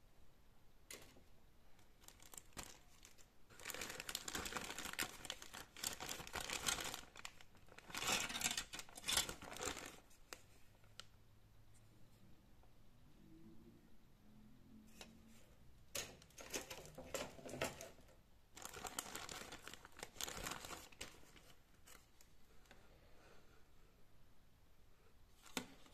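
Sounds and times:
plastic bag crinkling: 1.8s - 10.2s, 18.5s - 22.3s.

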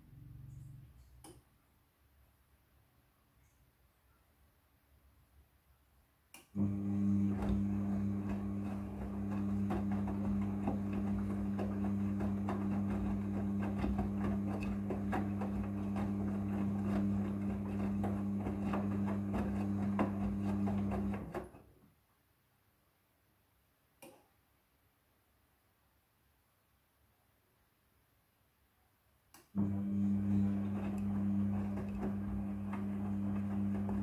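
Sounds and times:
washing machine motor hum: 6.6s - 21.7s, 29.6s - 34.0s.

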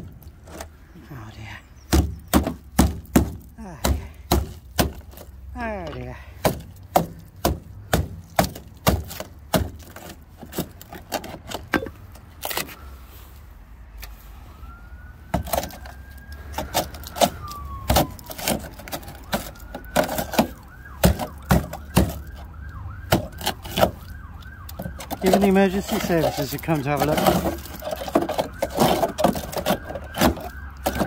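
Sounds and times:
emergency siren wailing and yelping: 13.8s - 31.0s.

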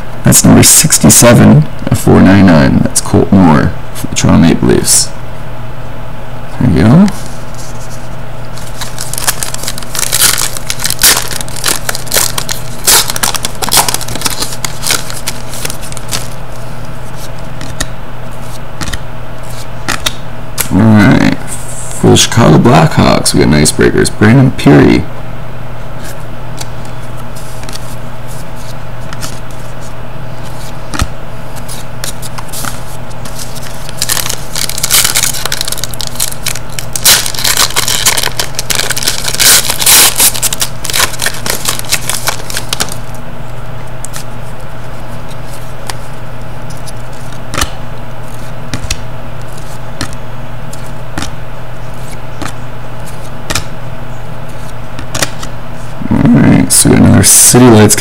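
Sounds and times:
steady low hum: 0.0s - 58.0s
cards clicking and sliding: 8.5s - 16.4s, 17.2s - 20.7s, 54.6s - 55.5s
foil wrapper crinkling and tearing: 8.5s - 16.4s, 31.7s - 43.2s.

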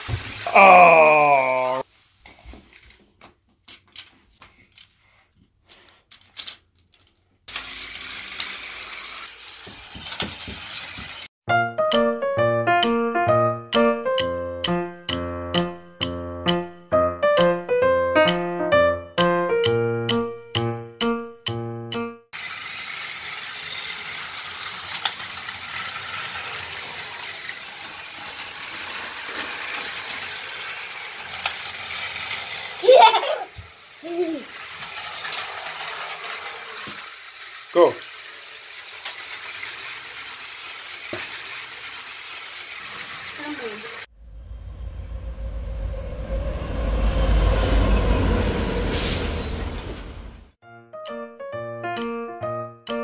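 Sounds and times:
toy train motor whirring: 0.0s - 0.7s, 3.7s - 11.3s, 22.4s - 44.1s
plastic track pieces clicking: 3.6s - 5.0s, 5.7s - 11.2s, 22.4s - 32.9s, 33.6s - 43.4s.

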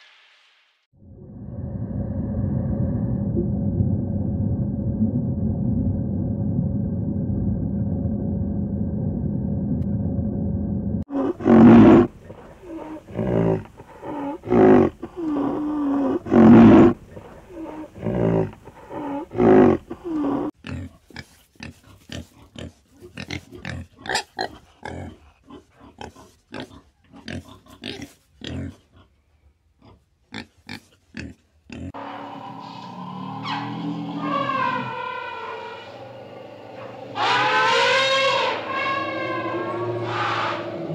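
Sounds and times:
steady low rumble: 1.0s - 11.1s
large animal calling: 11.1s - 20.5s, 31.9s - 40.9s
pigs grunting and squealing: 11.1s - 29.2s, 29.8s - 40.9s.

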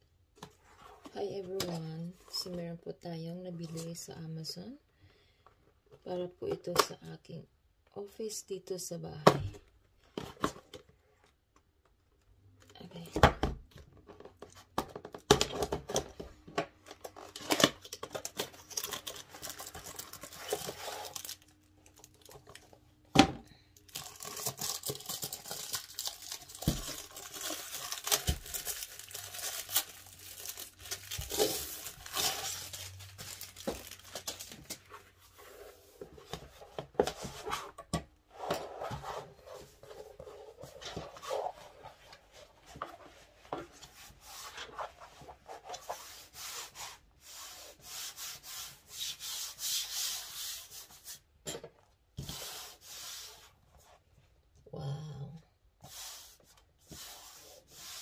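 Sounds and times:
box being handled and opened: 9.2s - 10.9s, 12.9s - 23.3s, 23.9s - 46.3s
plastic wrapping crinkling: 17.1s - 22.8s, 23.8s - 35.0s.

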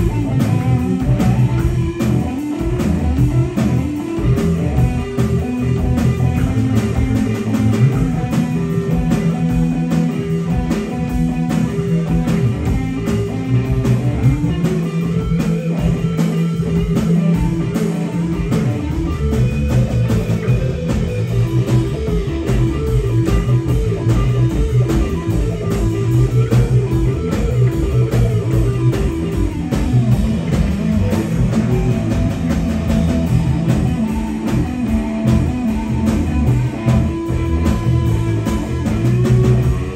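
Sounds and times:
bass line: 0.0s - 39.9s
rock band playing: 0.0s - 39.9s.

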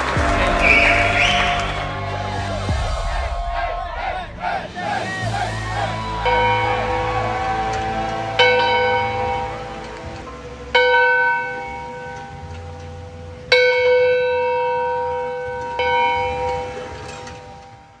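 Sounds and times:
church bell tolling: 5.3s - 18.0s.

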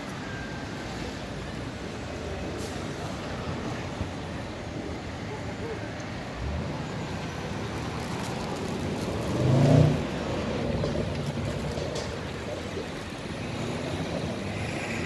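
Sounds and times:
road traffic rumble: 0.0s - 15.0s
passing vehicle engine: 6.3s - 15.0s.

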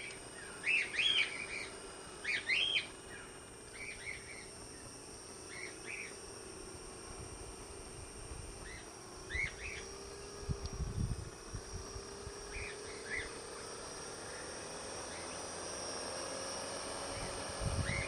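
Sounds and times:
bird chirps: 0.0s - 4.9s, 5.5s - 6.2s, 8.6s - 10.4s, 12.5s - 13.4s
drone motors and propellers humming: 0.0s - 18.0s.

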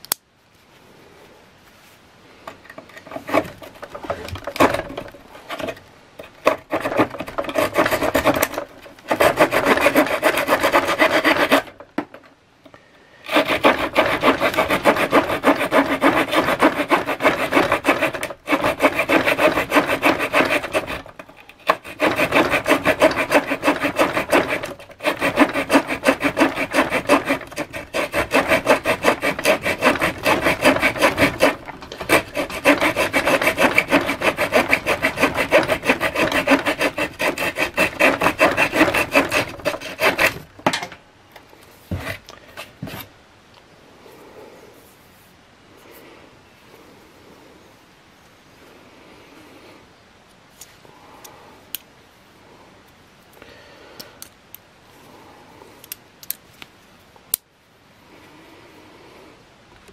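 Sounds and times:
multi-tool rasping on wood: 2.8s - 12.3s, 13.3s - 40.6s, 41.9s - 43.0s.

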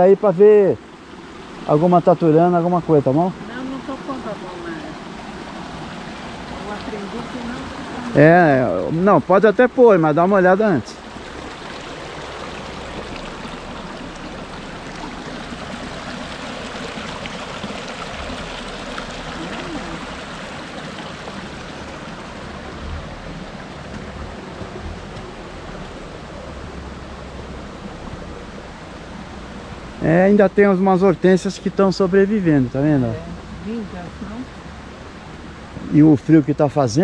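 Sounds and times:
small stream running: 0.0s - 37.0s.

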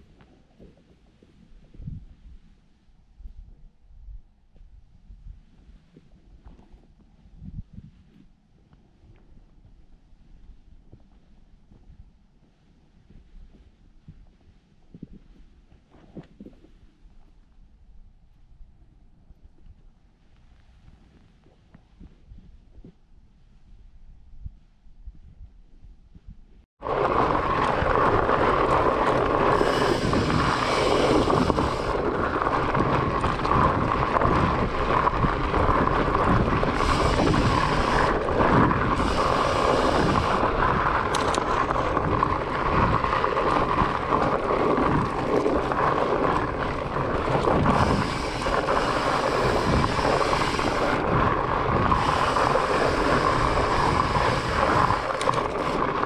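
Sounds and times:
wind across microphone: 0.0s - 56.0s
bike tyres rumbling on dirt trail: 26.1s - 56.0s.

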